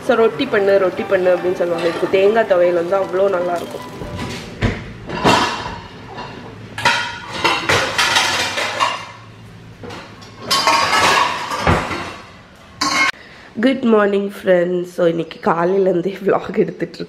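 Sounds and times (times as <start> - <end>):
dishes and cutlery clattering: 3.6 - 13.2.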